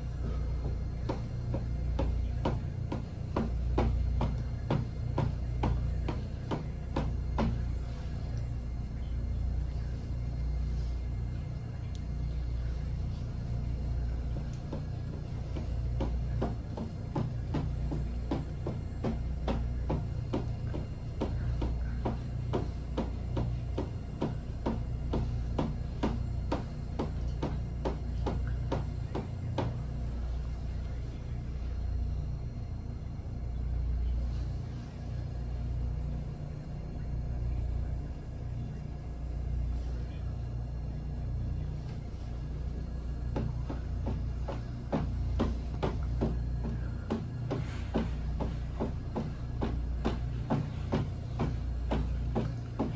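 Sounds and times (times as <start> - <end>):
steady low rumble: 0.0 - 52.9.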